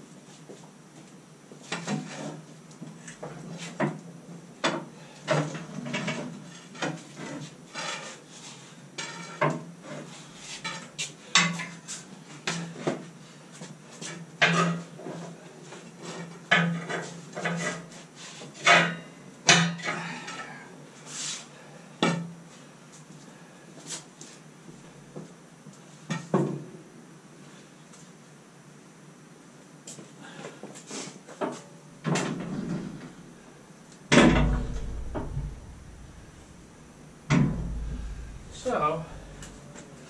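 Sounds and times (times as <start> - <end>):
metal clanks and knocks: 34.1 - 39.9.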